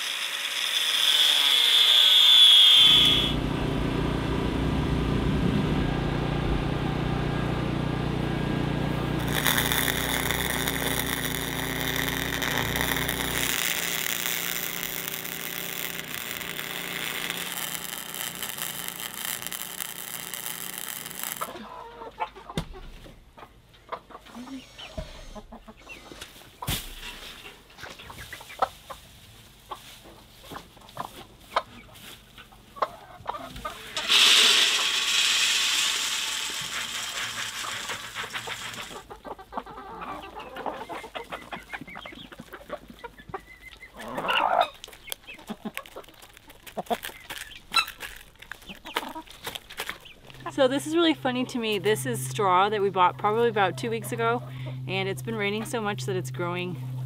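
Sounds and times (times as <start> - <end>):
welder crackling: 0.0 - 3.8, 8.5 - 21.6, 34.0 - 39.0, 44.7 - 53.4
grain pouring into metal feeder: 9.1 - 21.6, 33.9 - 39.0
hens clucking: 21.5 - 26.7, 27.8 - 34.1, 38.3 - 50.5.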